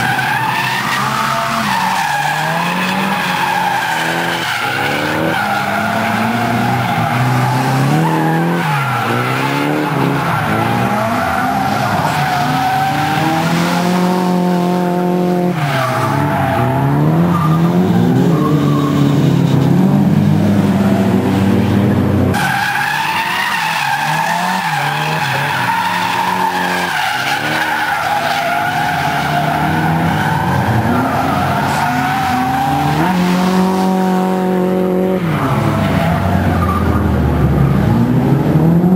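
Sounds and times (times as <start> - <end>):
car engines revving: 0.0 - 38.9
tyres squealing: 22.4 - 33.2.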